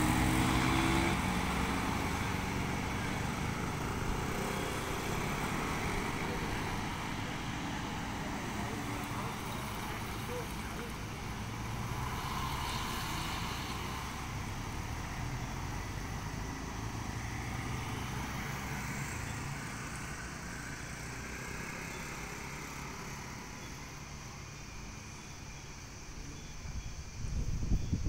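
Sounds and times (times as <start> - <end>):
motorcycle driving by: 0.0 - 23.6
cars driving by: 0.0 - 26.2.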